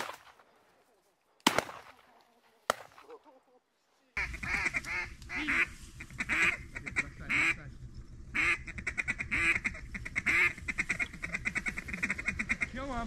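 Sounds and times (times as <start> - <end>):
duck chuckling chatter: 4.2 - 7.6, 8.4 - 12.8
duck quacking: 4.2 - 7.6, 8.4 - 13.0.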